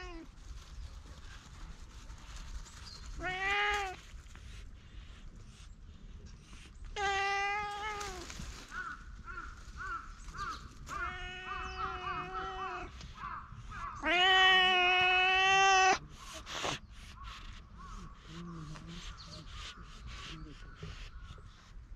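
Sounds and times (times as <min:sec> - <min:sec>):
cat meowing: 0:03.2 - 0:04.0, 0:07.0 - 0:08.3, 0:10.8 - 0:12.9, 0:13.9 - 0:16.0.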